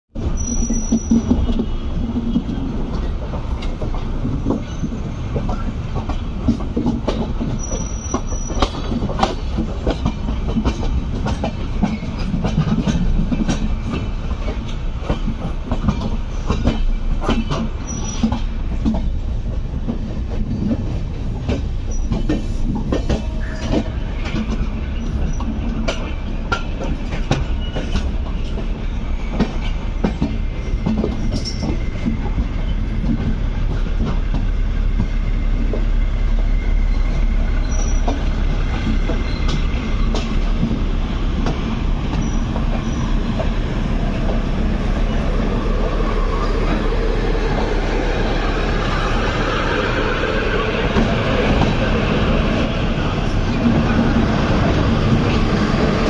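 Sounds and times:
train wheels rumbling on rails: 0:00.1 - 0:56.0
high wheel squeals: 0:00.2 - 0:01.4, 0:07.4 - 0:09.0, 0:17.8 - 0:18.4, 0:21.8 - 0:22.4, 0:36.3 - 0:40.2, 0:42.1 - 0:43.3.

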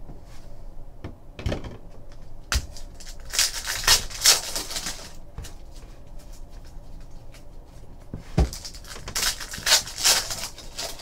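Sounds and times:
foil pack tearing open: 0:02.8 - 0:05.2, 0:08.5 - 0:11.0.

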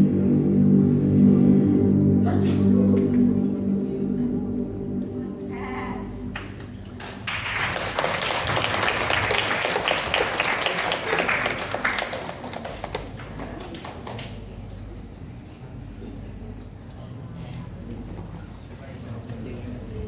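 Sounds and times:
audience applauding: 0:06.3 - 0:14.6.

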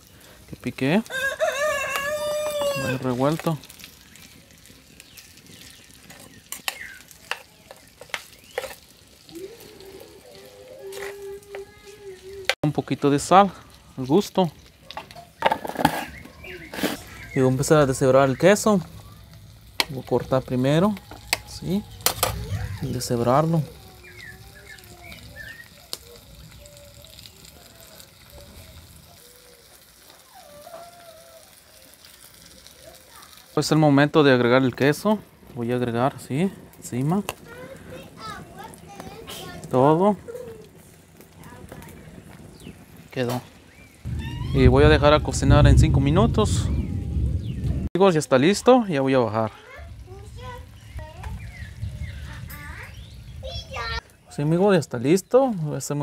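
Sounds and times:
faint frying sizzle: 0:00.0 - 0:56.0
metal spoon scraping a clay pot: 0:06.1 - 0:08.9, 0:15.4 - 0:17.2
faint wavering calls: 0:09.2 - 0:12.5, 0:44.0 - 0:45.2.

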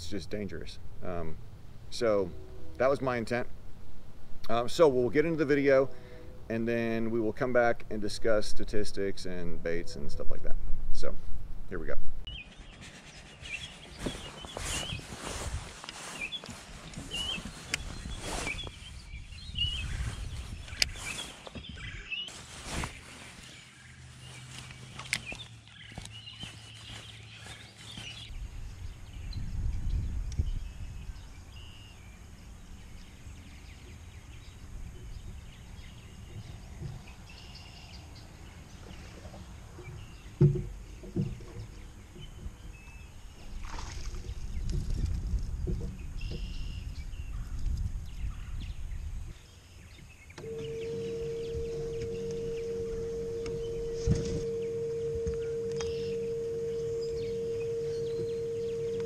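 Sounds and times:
small birds chirping: 0:12.3 - 0:59.0.

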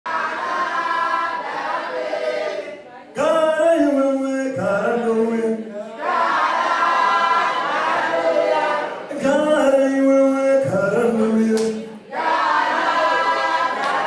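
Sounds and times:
voices singing in harmony: 0:03.7 - 0:14.0.

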